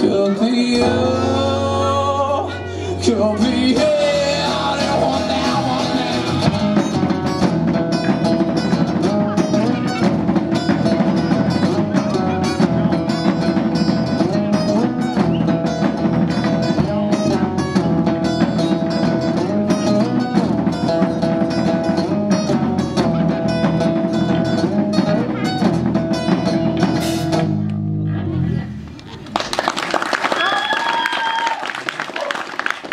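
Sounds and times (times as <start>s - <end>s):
acoustic guitar strumming: 0.0s - 28.2s
drum kit steady beat: 3.4s - 27.6s.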